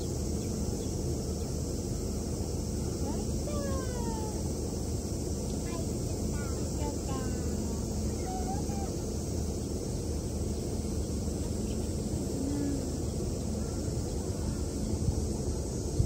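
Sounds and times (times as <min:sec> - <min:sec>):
low hum: 0:00.0 - 0:16.0
faint voice: 0:12.2 - 0:14.6.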